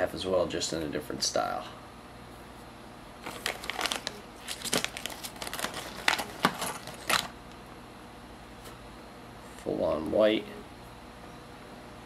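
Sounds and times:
packaging crinkling: 0:03.2 - 0:07.6.

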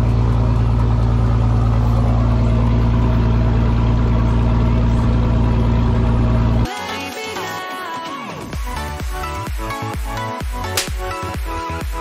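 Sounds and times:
boat engine running: 0:00.0 - 0:06.7.

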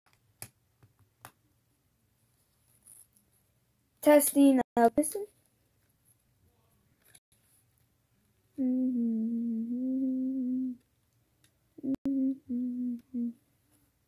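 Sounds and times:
child humming: 0:08.6 - 0:10.8, 0:11.8 - 0:13.4.

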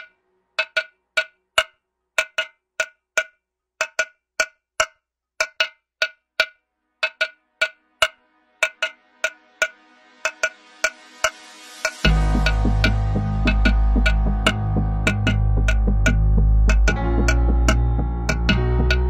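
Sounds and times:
sustained synth pad: 0:08.3 - 0:19.0
bright electronic percussion hits: 0:08.6 - 0:19.0.

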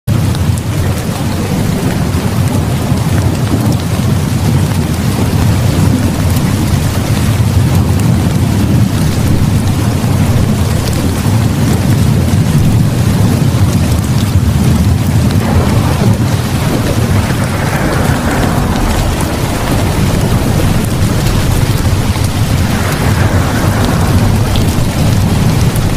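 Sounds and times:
heavy rain: 0:00.0 - 0:25.9
low rumble of thunder: 0:00.1 - 0:25.9.

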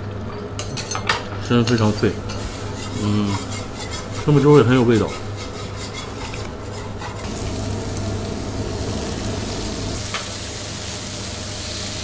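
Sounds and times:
food sizzling on griddle: 0:07.2 - 0:12.0.

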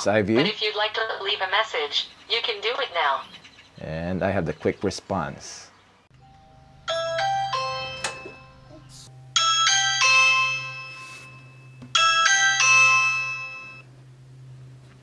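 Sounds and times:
low steady hum: 0:00.0 - 0:15.0
electronic doorbell chimes: 0:06.2 - 0:13.9.

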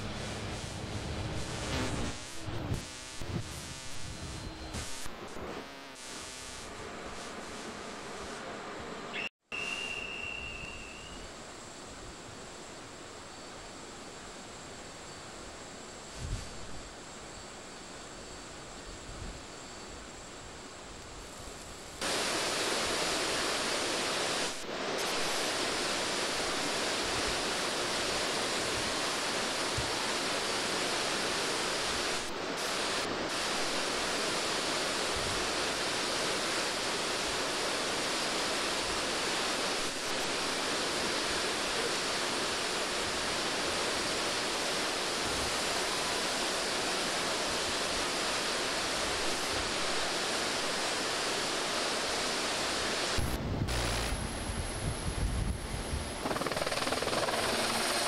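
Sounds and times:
sea: 0:56.1 - 0:58.0.

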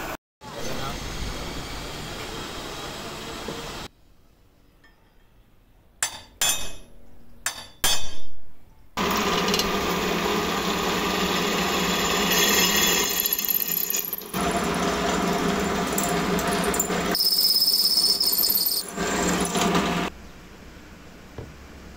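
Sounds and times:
drill press cutting steel: 0:09.0 - 0:20.1.

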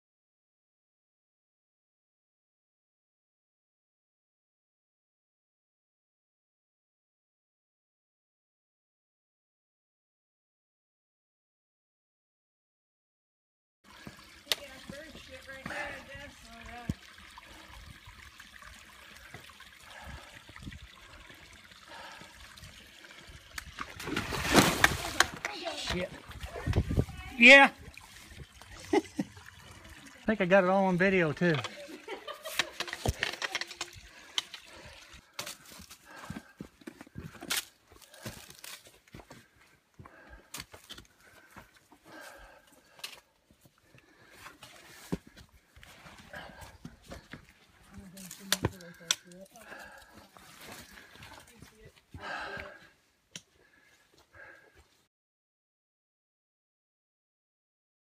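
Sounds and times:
faint trickle of water: 0:13.9 - 0:24.1, 0:25.0 - 0:36.3, 0:44.0 - 0:52.8.

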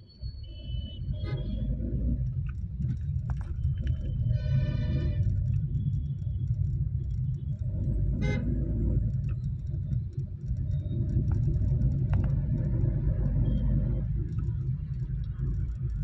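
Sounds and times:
car driving rumble: 0:00.4 - 0:16.0
vehicle horn toot: 0:08.2 - 0:08.5.

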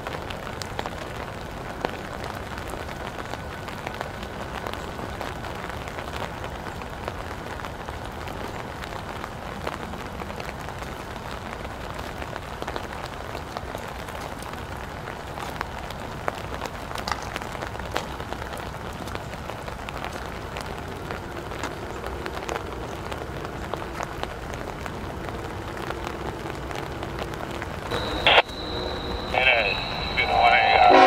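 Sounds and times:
raindrops ticking: 0:00.0 - 0:30.4
steady rain falling: 0:00.0 - 0:31.0
faint steady hum: 0:27.9 - 0:31.0.

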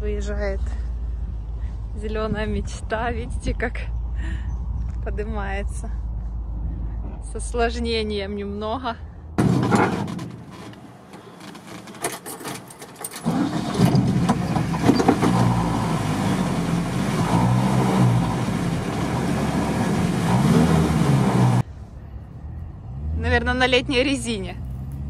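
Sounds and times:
van engine revving: 0:13.2 - 0:21.7, 0:22.4 - 0:25.0.

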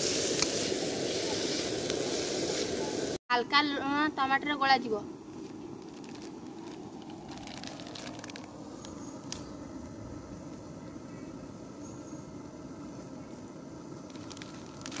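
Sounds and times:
background hiss: 0:00.0 - 0:15.0
plastic packet crinkling: 0:05.4 - 0:08.6, 0:14.1 - 0:15.0.

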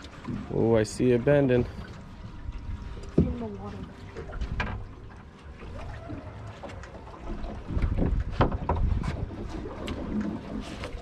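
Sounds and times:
water lapping against boat hull: 0:00.0 - 0:11.0
wind buffeting microphone: 0:07.3 - 0:09.8.

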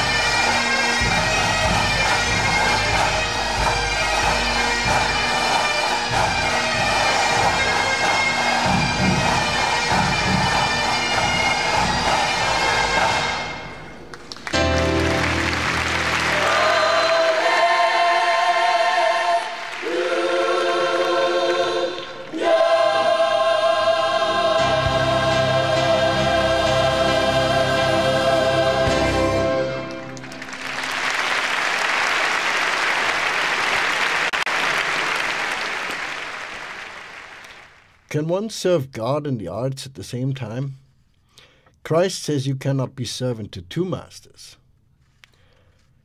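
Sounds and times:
choir singing with instruments: 0:00.0 - 0:30.7
audience applauding: 0:00.4 - 0:18.3, 0:19.2 - 0:22.2, 0:29.8 - 0:37.9.

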